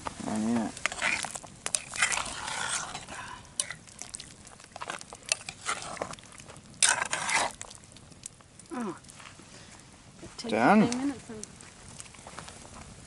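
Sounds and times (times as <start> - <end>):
thick gravy moving: 0.0 - 13.0
utensil clinking and scraping a pot: 0.2 - 7.8.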